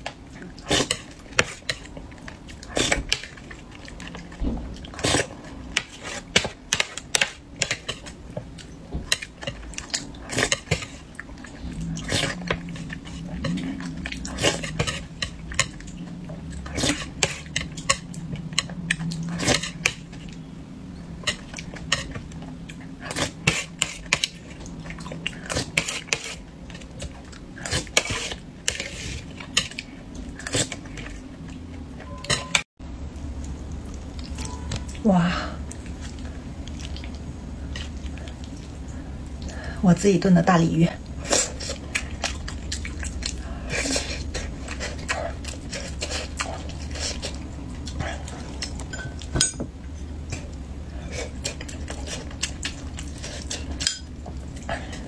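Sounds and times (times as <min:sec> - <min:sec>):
chewing: 0:00.0 - 0:20.4, 0:35.6 - 0:39.6, 0:41.1 - 0:55.0.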